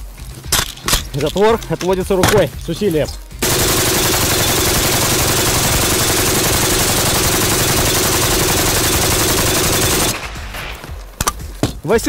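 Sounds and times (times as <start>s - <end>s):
machine gun automatic fire: 3.4s - 10.6s.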